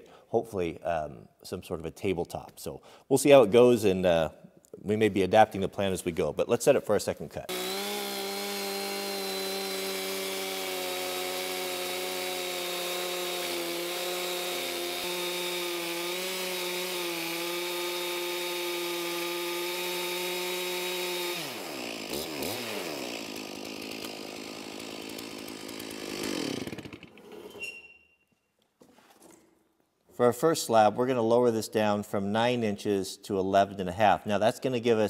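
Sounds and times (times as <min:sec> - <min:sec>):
chainsaw cutting wood: 0:07.5 - 0:27.7.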